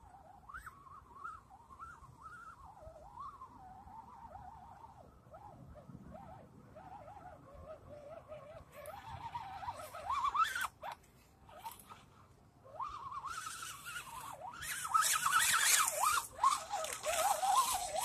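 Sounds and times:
electric motor and gears whining: 12.8 - 18.0.

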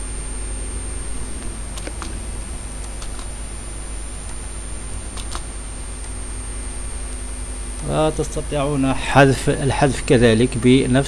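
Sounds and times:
steady electrical hum: 0.0 - 11.0
computer mouse clicks: 2.8 - 3.3, 5.2 - 5.5.

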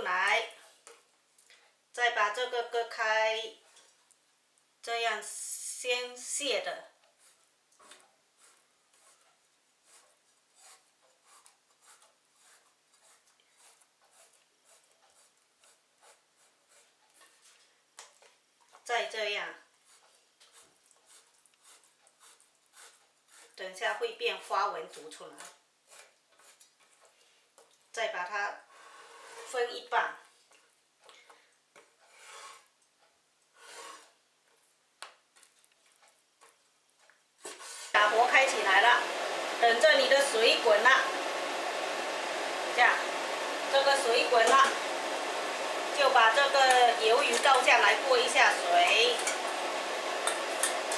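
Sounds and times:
cleaver scraping on chopping board: 7.2 - 17.5, 19.8 - 23.6, 24.9 - 27.2, 29.0 - 29.7, 31.8 - 32.7, 33.6 - 34.2
blade scraping: 29.0 - 29.7, 32.0 - 32.7, 46.0 - 50.9.

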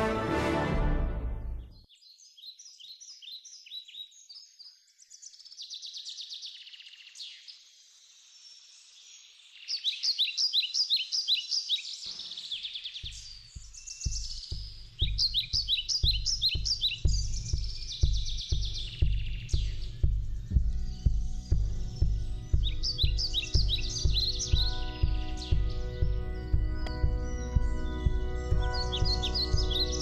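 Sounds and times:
music: 0.0 - 1.8, 13.0 - 30.0
small birds chirping: 1.6 - 30.0
low thuds: 13.0 - 30.0.

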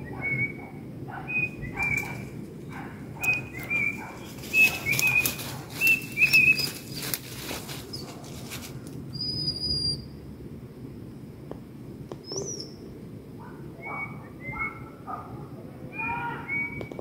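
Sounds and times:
sharp rustling and crackling: 1.6 - 9.1.

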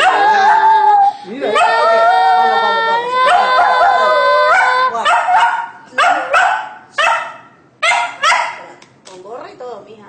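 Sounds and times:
dog barking: 3.3 - 8.8.

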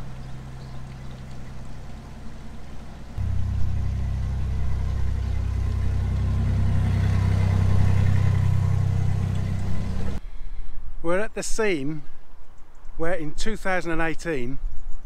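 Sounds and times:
boat engine running: 0.0 - 10.2.

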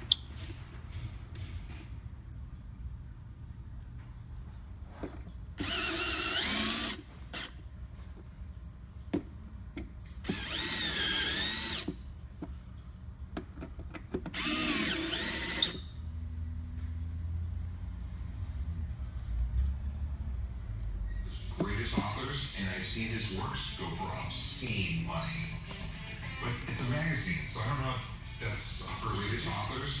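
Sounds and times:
power drill driving screws: 5.6 - 7.6, 10.2 - 12.0, 14.3 - 15.9.

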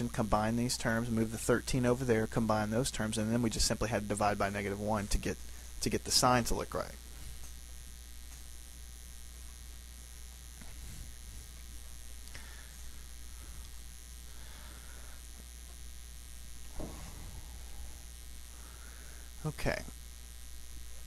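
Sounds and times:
low electrical hum: 0.0 - 21.0
cloth rubbing on whiteboard: 10.6 - 11.8.

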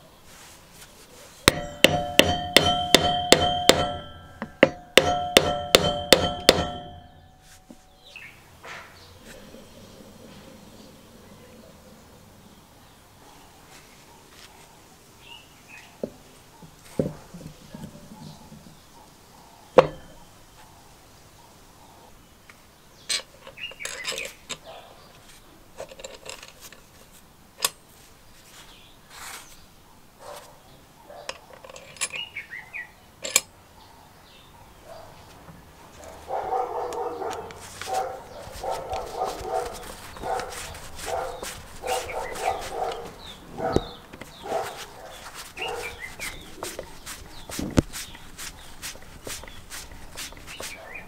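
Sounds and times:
small metal parts clicking: 23.1 - 24.6, 25.8 - 27.0, 31.3 - 32.3, 33.2 - 33.5.

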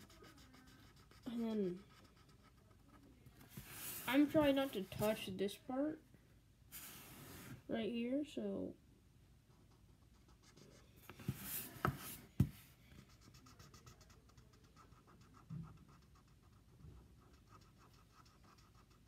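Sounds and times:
marker scrubbing on paper: 0.0 - 2.8, 3.5 - 5.3, 9.7 - 19.0.

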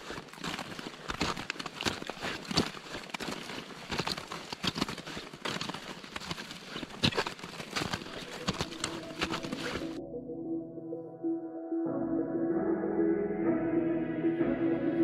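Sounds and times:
crampon footsteps crunching on ice: 0.0 - 10.0.

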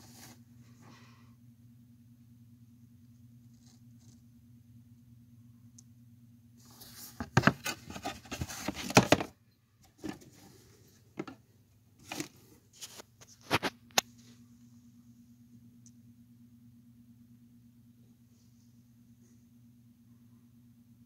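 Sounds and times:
handling rustling: 6.6 - 11.4, 12.0 - 13.6.

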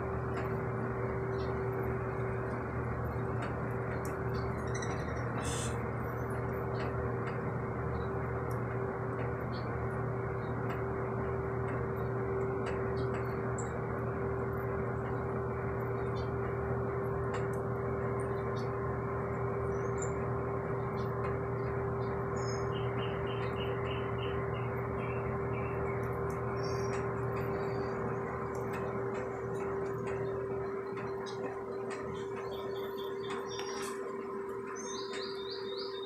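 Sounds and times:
mechanical hum: 0.0 - 36.0
small birds chirping: 0.4 - 6.9, 19.6 - 36.0.

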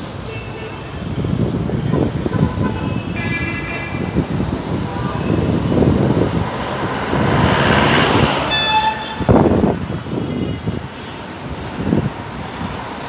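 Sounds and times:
street traffic rumbling: 0.0 - 13.0
vehicle horn toot: 8.5 - 9.4, 10.2 - 11.2.

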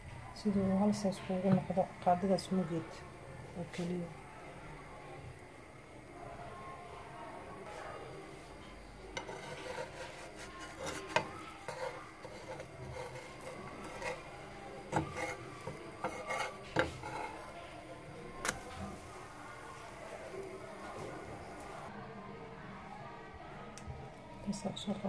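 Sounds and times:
spatula scraping a frying pan: 9.1 - 17.6.

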